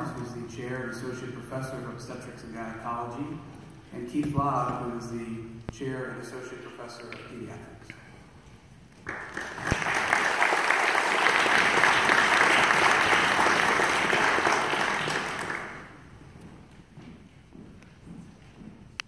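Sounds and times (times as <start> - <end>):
audience applauding: 9.0 - 16.1.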